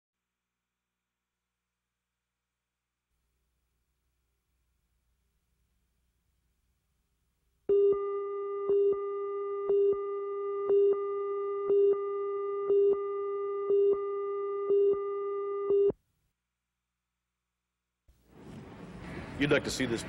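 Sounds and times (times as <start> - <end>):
beeps: 7.7 - 15.9.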